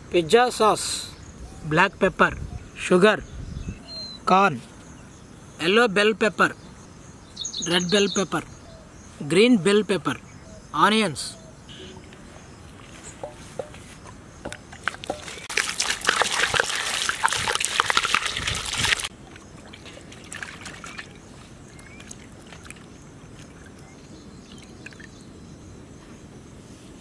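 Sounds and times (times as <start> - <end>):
water pouring into steel bowl: 15.1 - 19.1
vegetables rubbed in water: 15.2 - 19.1.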